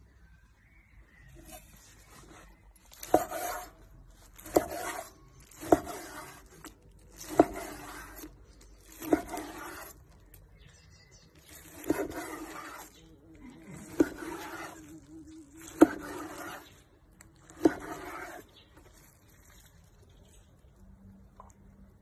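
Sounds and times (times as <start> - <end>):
knife rasping scrape: 1.4 - 10.1, 11.4 - 19.0.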